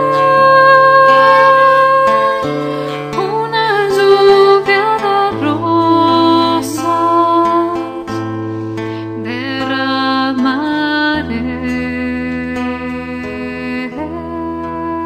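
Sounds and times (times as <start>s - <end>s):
bass notes: 0.0s - 4.9s
acoustic guitar: 0.0s - 15.0s.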